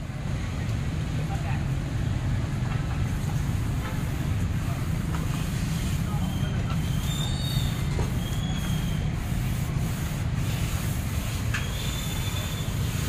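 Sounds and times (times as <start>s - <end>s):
street traffic: 0.0s - 13.0s
faint high whistles: 6.1s - 9.1s, 11.6s - 12.9s.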